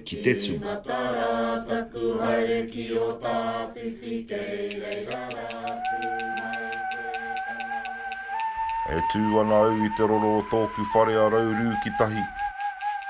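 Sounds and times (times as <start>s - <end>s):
voices chanting: 0.0s - 13.0s
high held tone: 4.8s - 13.0s.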